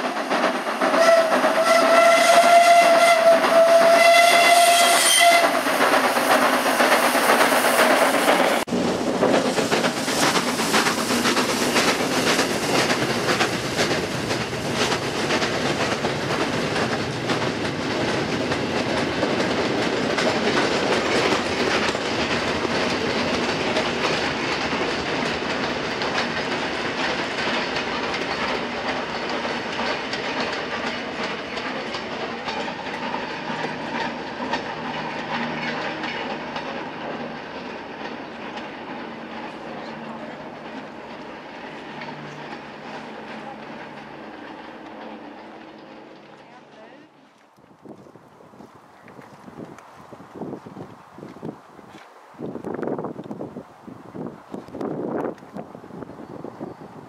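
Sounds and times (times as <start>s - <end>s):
train wheels clacking on rails: 0.0s - 47.0s
steam whistle: 0.9s - 5.7s.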